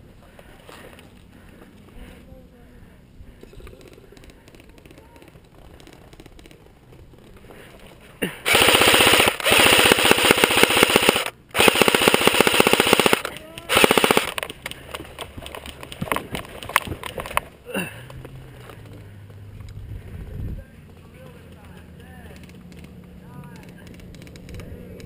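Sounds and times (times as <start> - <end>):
airsoft rifle firing bursts: 8.4 - 14.5.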